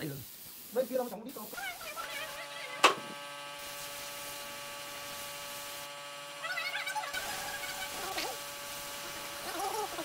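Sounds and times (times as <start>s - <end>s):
small electric motor humming: 0.7s - 10.0s.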